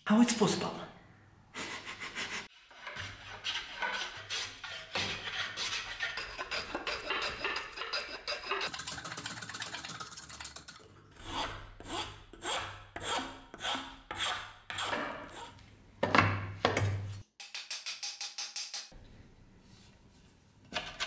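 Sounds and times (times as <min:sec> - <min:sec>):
sandpaper rasping on wood: 0:02.5 - 0:09.0.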